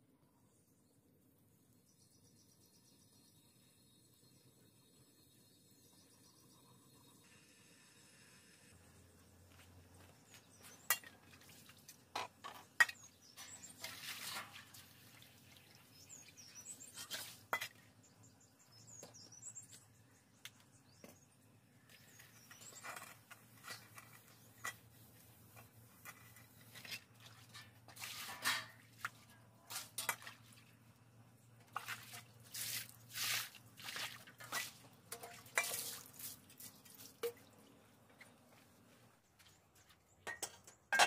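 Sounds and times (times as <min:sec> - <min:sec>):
small birds chirping: 0:09.1 - 0:12.0, 0:12.6 - 0:27.0
metal pans clinking on brick: 0:10.7 - 0:11.3, 0:27.5 - 0:28.8, 0:34.4 - 0:36.1, 0:40.2 - 0:41.0.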